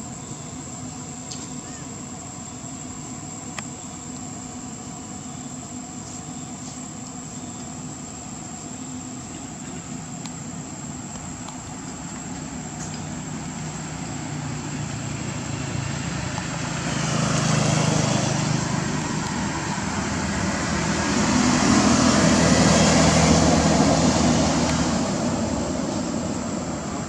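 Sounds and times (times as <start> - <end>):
road vehicles passing: 9.1 - 27.0.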